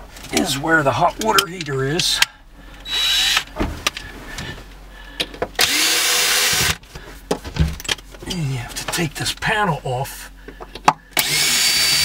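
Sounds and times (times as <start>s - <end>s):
cordless drill running: 2.8s - 3.5s, 5.6s - 6.8s, 11.2s - 12.0s.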